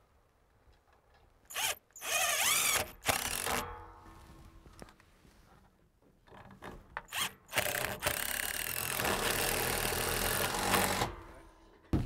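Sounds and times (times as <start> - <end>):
cordless drill driving screw: 1.5 - 3.6, 7.1 - 11.1.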